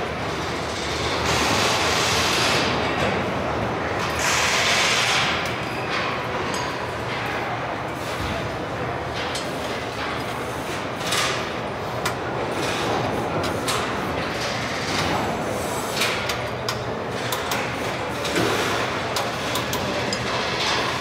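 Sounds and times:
machinery din and hiss: 4.0 - 5.4.

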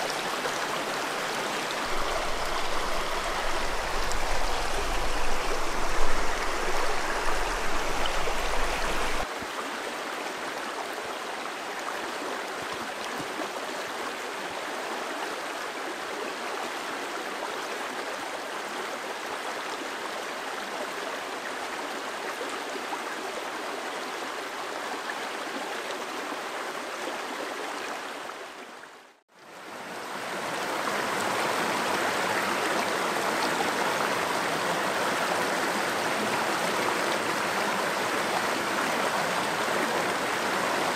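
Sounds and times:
stream flowing over stones: 0.0 - 40.9.

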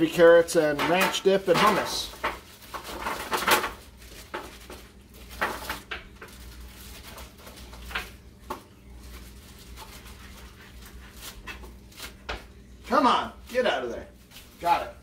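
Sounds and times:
plastic bag crinkle: 0.8 - 12.1.

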